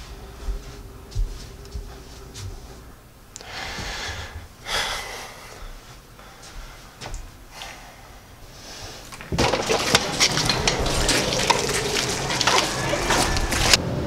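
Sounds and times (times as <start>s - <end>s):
coffee shop background noise: 9.2s - 13.8s
dishes and cups clinking: 9.2s - 13.8s.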